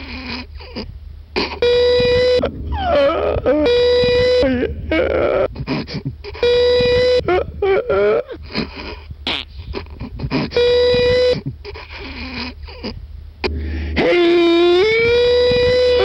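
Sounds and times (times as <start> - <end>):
man wailing held notes: 1.6 - 5.6, 13.5 - 16.0
man laughing: 2.0 - 16.0
breathy gasps: 11.7 - 14.0.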